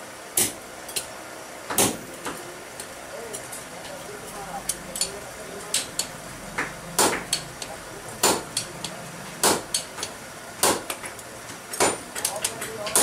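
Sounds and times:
hammer striking on anvil: 4.9 - 11.0.

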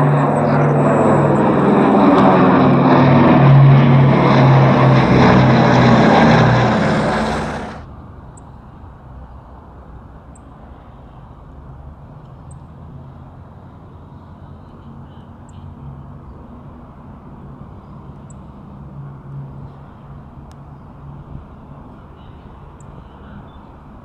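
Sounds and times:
distant rumble: 0.0 - 7.9
propeller aircraft engines overhead: 0.0 - 24.0.

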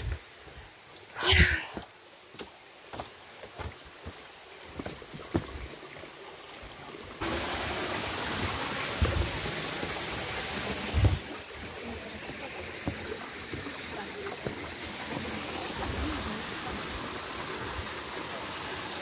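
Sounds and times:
stream water rushing: 0.0 - 19.0
light knocks and steps: 2.3 - 6.0, 12.2 - 13.7.

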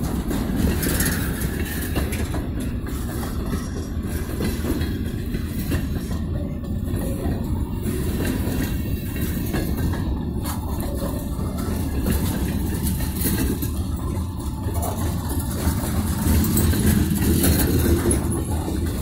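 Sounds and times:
train wheels rumbling on rail: 0.0 - 19.0.

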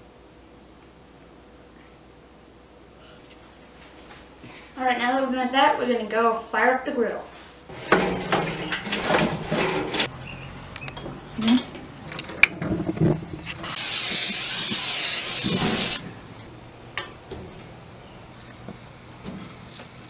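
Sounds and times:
gas burner hissing: 13.7 - 20.0.

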